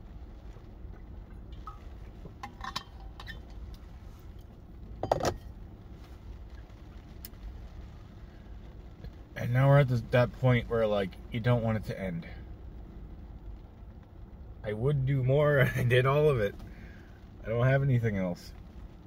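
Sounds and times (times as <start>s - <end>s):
car cabin rumble: 0.0s - 19.0s
handling noise: 1.5s - 6.1s.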